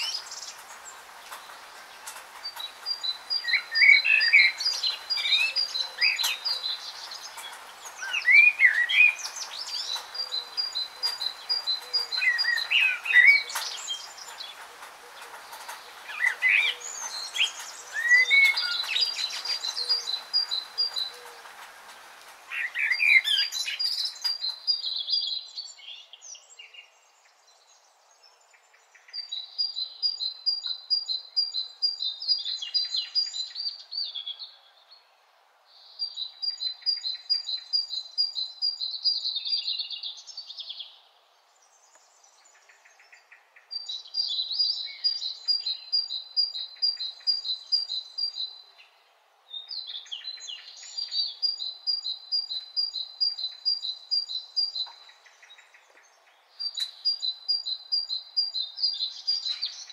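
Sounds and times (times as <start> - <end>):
steady hiss: 0.0 - 25.0
songbirds trilling and chirping: 0.0 - 59.9.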